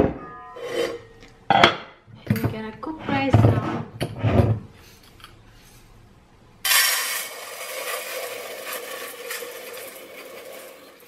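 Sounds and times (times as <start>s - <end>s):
rice pouring into metal pot: 6.7s - 11.0s.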